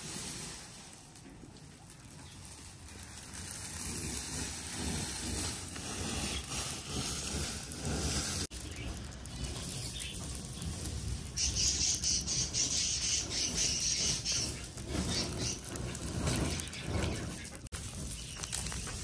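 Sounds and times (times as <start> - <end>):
rustling: 0.0 - 19.0
wings flapping: 7.6 - 19.0
high fast-pulsing chirping: 8.5 - 15.8.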